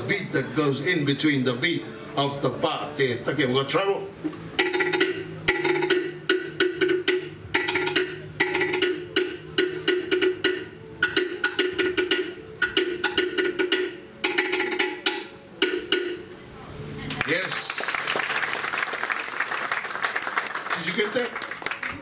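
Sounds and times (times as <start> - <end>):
wooden slit drums struck rapidly: 4.6 - 16.3.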